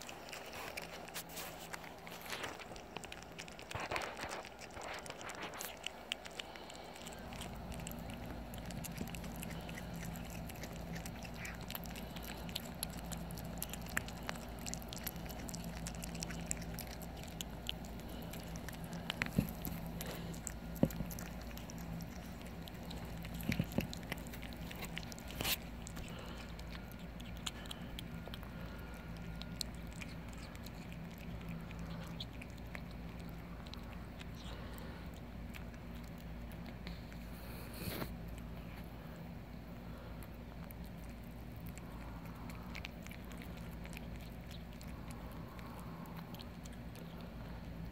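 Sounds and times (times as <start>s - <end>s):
kittens chewing wet smacking: 0.0s - 47.9s
steady low hum: 0.0s - 47.9s
teeth clicking on meat: 0.0s - 47.9s.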